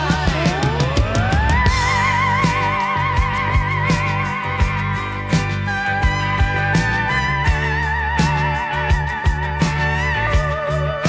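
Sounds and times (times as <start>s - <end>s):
drum beat: 0.0s - 7.7s
bass line: 0.0s - 11.0s.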